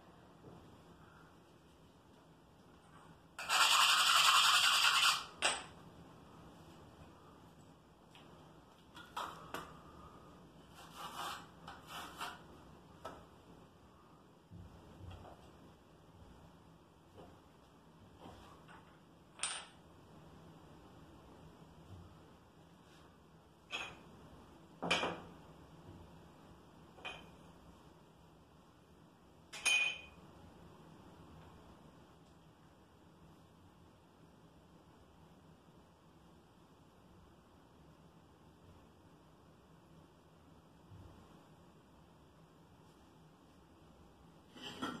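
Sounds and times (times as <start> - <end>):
trowel scraping mortar on tile: 10.7 - 12.5.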